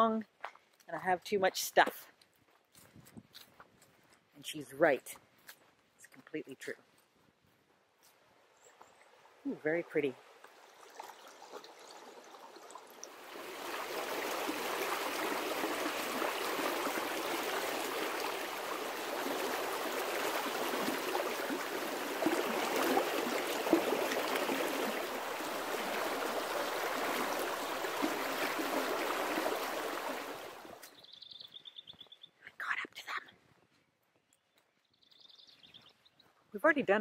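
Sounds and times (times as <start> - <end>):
creek babbling over stones: 8.4 - 30.9.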